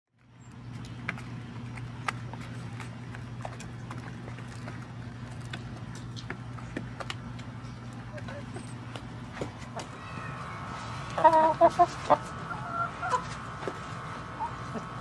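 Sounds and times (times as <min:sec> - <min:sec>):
steady low hum: 0:00.2 - 0:15.0.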